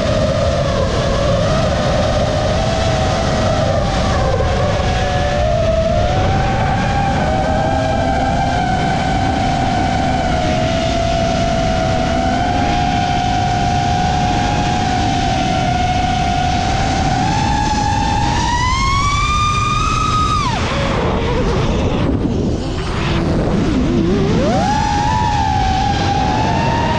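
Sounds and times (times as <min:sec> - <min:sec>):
drone motors whining: 0:00.0 - 0:26.9
rushing wind: 0:00.0 - 0:26.9.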